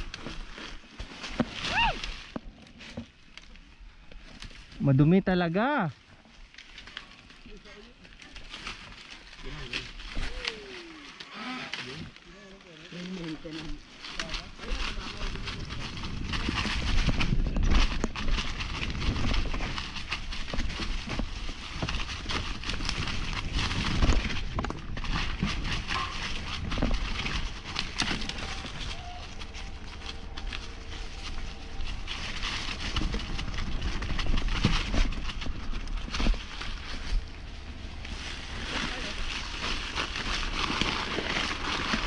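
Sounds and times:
tyres crunching over stones: 0.0s - 42.0s
bike rattling and knocking: 13.5s - 42.0s
wind rumble on microphone: 14.1s - 42.0s.

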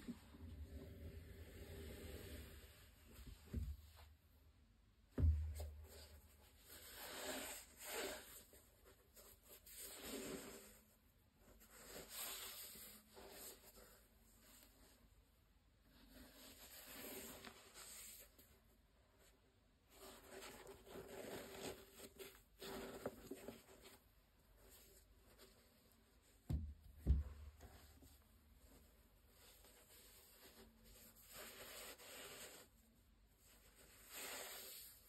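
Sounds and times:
low thump: 5.1s - 5.9s, 26.5s - 27.6s.

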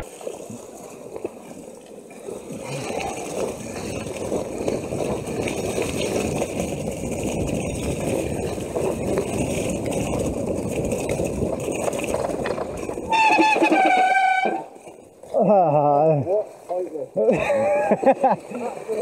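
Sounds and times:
bike clattering and rattling: 3.3s - 15.4s.

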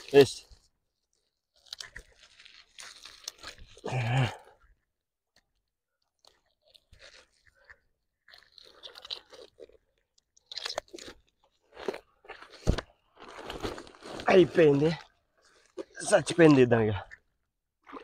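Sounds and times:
nylon net rustling and crackling: 0.0s - 4.0s.

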